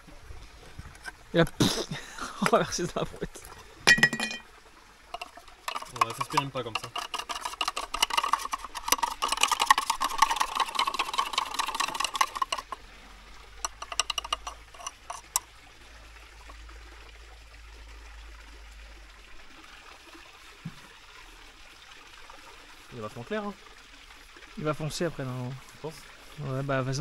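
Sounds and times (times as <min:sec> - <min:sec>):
stick scraping a pot: 0:05.1 - 0:12.8, 0:13.6 - 0:15.4.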